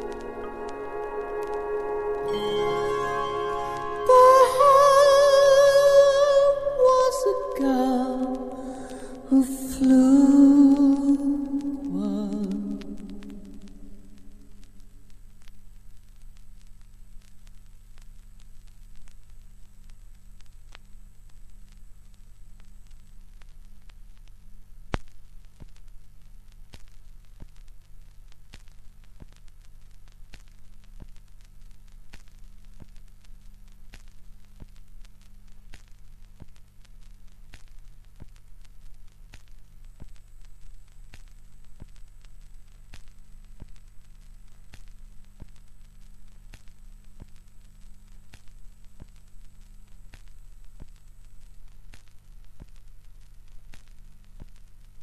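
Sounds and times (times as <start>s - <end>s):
record run-out groove clicks: 0.0s - 2.8s, 3.7s - 54.8s
low hum: 0.0s - 14.9s
vinyl surface crackle: 0.0s - 55.0s.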